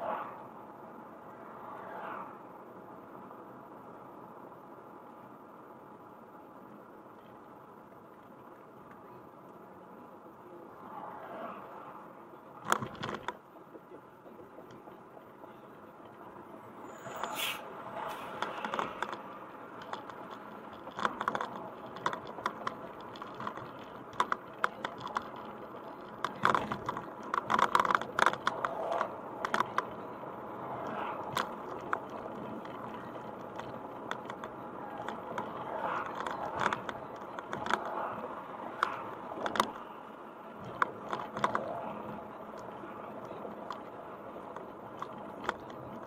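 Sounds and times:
car road and engine noise: 0:00.0 - 0:46.0
clicks and rattles in car cabin: 0:12.6 - 0:15.0, 0:18.3 - 0:30.1.

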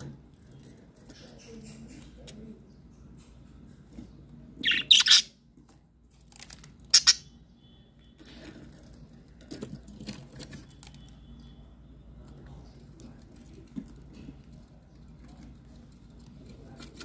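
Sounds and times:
budgerigars squawking: 0:04.6 - 0:05.3, 0:07.0 - 0:07.2.

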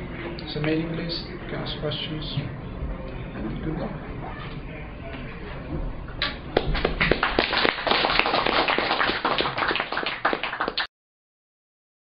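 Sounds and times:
audience applauding: 0:06.6 - 0:10.9.

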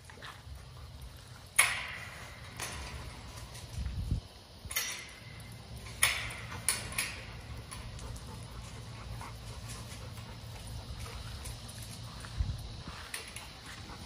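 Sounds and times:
metal gate clinking: 0:01.4 - 0:03.9, 0:04.6 - 0:08.8.

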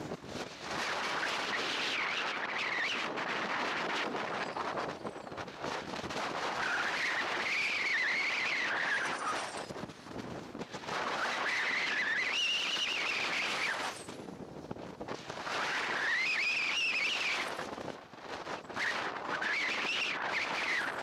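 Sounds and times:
wind buffeting microphone: 0:00.0 - 0:21.0
glider whistling through air: 0:01.2 - 0:05.3, 0:06.5 - 0:09.7, 0:11.0 - 0:14.1, 0:15.5 - 0:17.7, 0:18.6 - 0:21.0.

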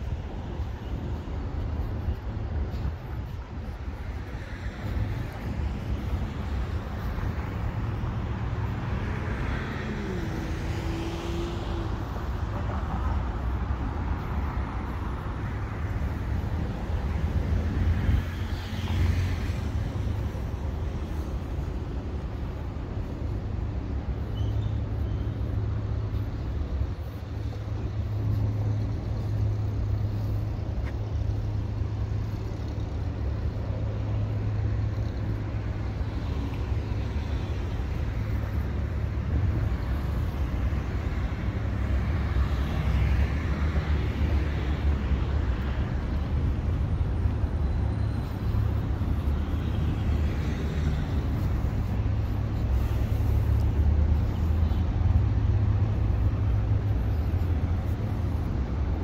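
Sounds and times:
road traffic rumble: 0:00.0 - 0:59.0.

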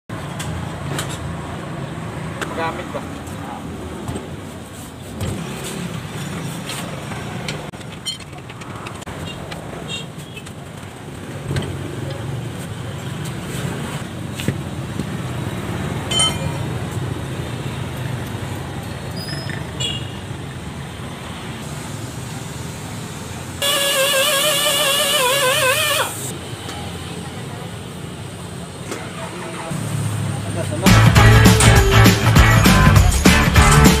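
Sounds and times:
road traffic rumble: 0:00.1 - 0:34.0
brief high squeaks: 0:19.1 - 0:20.1, 0:23.6 - 0:26.3.

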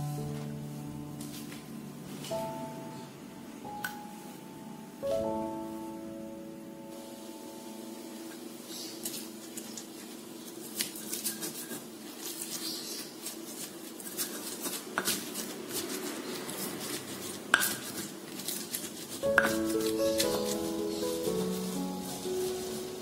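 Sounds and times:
stone pestle pounding in mortar: 0:17.5 - 0:18.1, 0:19.2 - 0:20.5.

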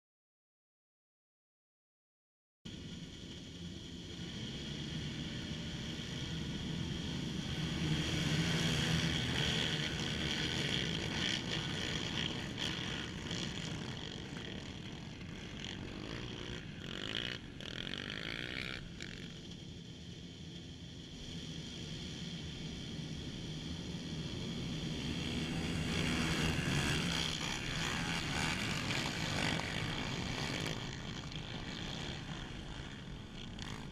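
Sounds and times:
quad engines revving hard: 0:04.6 - 0:19.5, 0:24.0 - 0:33.9.

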